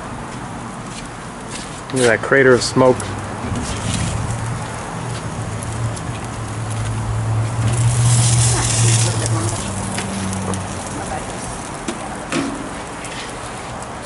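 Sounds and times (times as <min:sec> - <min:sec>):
food sizzling on a grill: 0:02.0 - 0:13.8
metal spatula scraping foil: 0:07.9 - 0:11.6.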